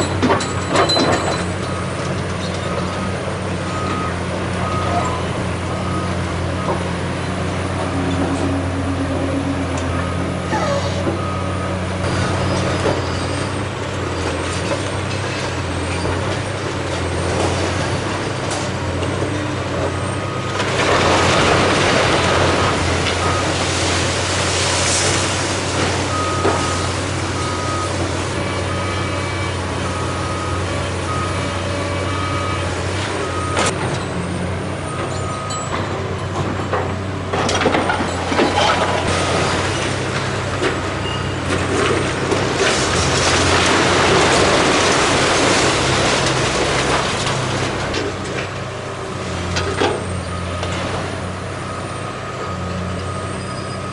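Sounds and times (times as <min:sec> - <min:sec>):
excavator diesel engines running: 0:00.0 - 0:53.9
reversing alarm beeping: 0:03.7 - 0:06.8
brick rubble clattering: 0:20.5 - 0:28.2, 0:35.1 - 0:48.6.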